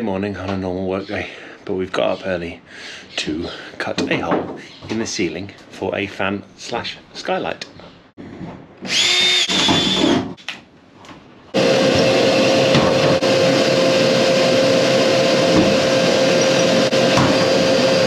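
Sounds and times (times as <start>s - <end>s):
cordless drill whirring: 8.8s - 10.3s, 11.6s - 18.0s
vacuum cleaner running: 8.9s - 10.2s, 11.5s - 18.0s.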